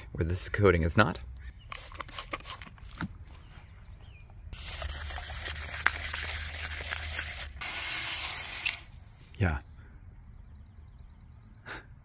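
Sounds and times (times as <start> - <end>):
spray bottle hissing: 1.7 - 2.7, 4.6 - 8.9.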